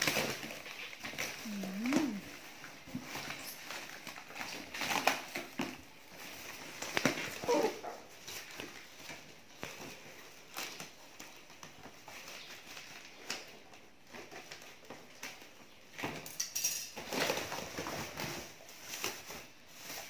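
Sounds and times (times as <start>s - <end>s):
plastic wrapping crinkling: 0.0s - 16.0s, 17.0s - 20.0s.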